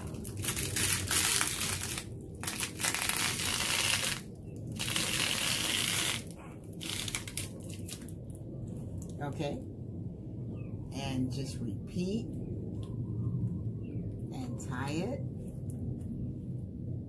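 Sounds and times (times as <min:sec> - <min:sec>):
plastic wrapper crinkling: 0:00.0 - 0:08.2.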